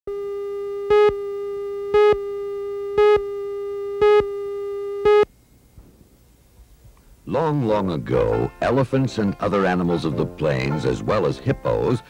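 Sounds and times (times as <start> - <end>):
steady electronic tone: 0.1 - 5.3
countdown beeps: 0.9 - 1.2, 1.9 - 2.3, 3.0 - 3.3, 4.0 - 4.3, 5.0 - 5.3.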